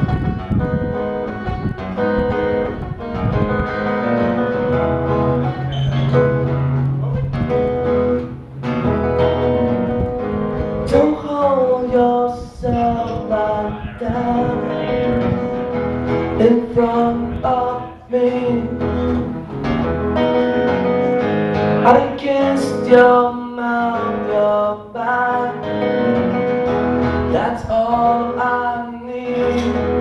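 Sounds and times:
acoustic guitars strummed: 0.0s - 30.0s
person singing: 10.9s - 19.6s, 20.5s - 26.2s, 27.1s - 30.0s.

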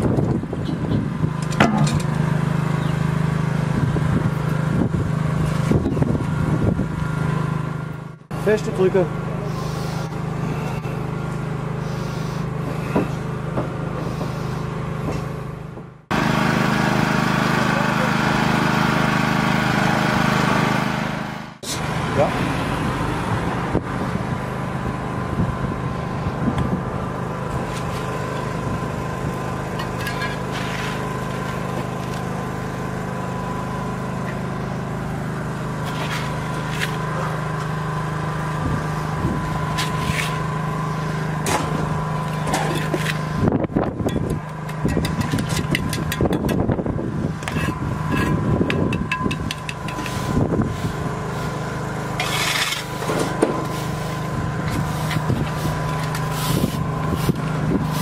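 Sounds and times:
engine running: 0.0s - 58.0s
shovel scraping on asphalt: 9.5s - 10.8s, 27.6s - 28.5s, 29.7s - 32.4s, 35.8s - 37.4s, 39.6s - 43.4s, 47.4s - 48.6s, 49.6s - 58.0s.

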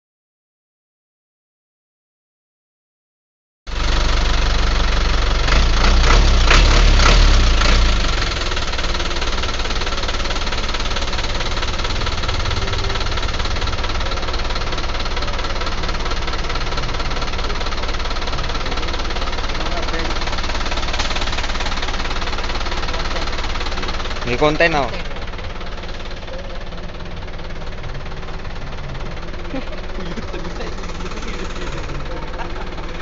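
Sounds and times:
diesel engine running: 3.7s - 33.0s.

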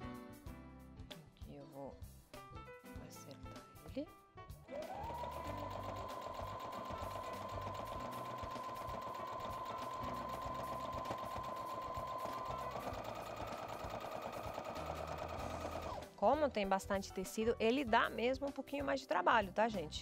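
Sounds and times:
sewing machine running: 4.7s - 16.1s.

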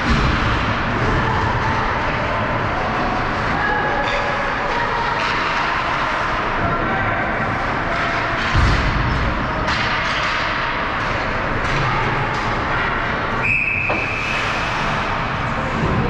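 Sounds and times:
stick and puck clacks: 4.0s - 6.4s, 7.9s - 15.1s.

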